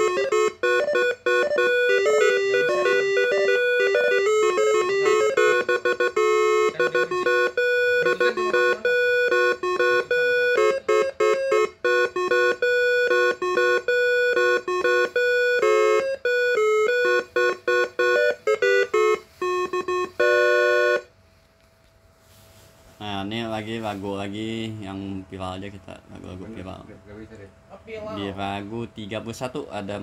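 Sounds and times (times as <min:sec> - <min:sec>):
musical air horn playing staccato notes: 0:00.0 - 0:16.3, 0:17.0 - 0:21.1.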